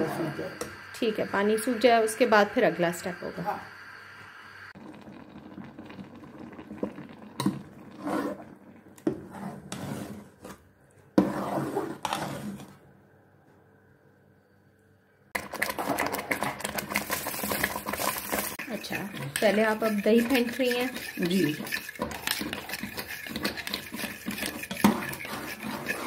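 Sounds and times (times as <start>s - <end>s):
thick greens bubbling: 4.8s - 9.0s, 15.4s - 26.0s
metal spoon scraping a pot: 15.4s - 26.0s.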